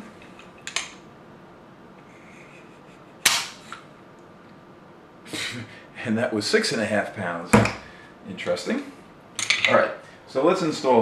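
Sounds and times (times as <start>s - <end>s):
sharp metallic hammer snap: 3.2s - 3.6s.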